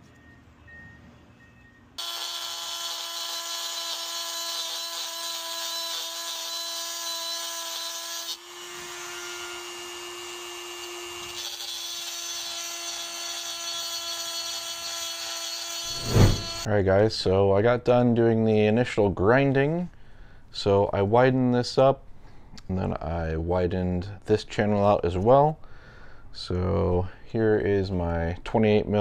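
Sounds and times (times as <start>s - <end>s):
rotary tool grinding metal: 11.3s - 16.7s.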